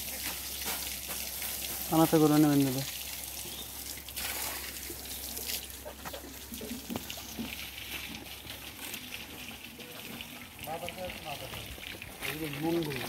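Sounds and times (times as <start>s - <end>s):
water trickling and splashing: 0.0s - 13.0s.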